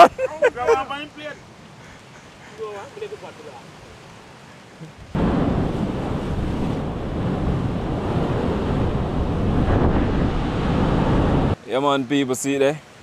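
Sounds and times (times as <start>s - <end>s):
loud low rushing noise: 5.2s - 11.6s.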